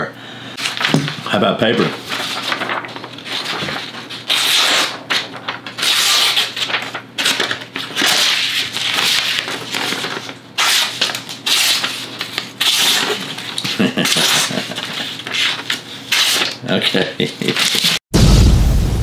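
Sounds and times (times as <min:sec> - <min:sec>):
paper rustling: 0:00.6 - 0:18.0
knife slicing paper: 0:01.9 - 0:16.6.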